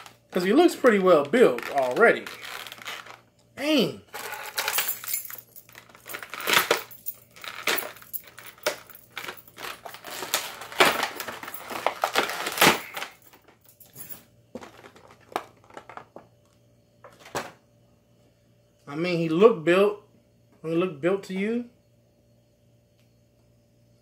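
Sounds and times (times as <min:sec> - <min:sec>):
plastic bag crinkling: 0:00.0 - 0:03.2, 0:04.2 - 0:13.6
plastic pieces clinking: 0:00.0 - 0:03.2, 0:04.1 - 0:16.2.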